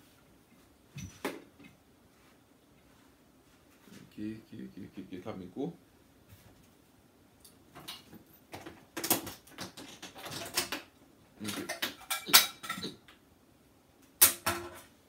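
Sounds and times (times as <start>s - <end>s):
audio cables rattling: 7.7s - 13.2s.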